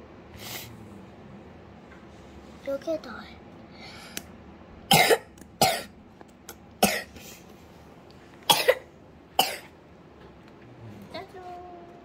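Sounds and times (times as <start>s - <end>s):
person coughing: 4.9s - 5.9s, 6.8s - 7.2s, 8.5s - 9.7s.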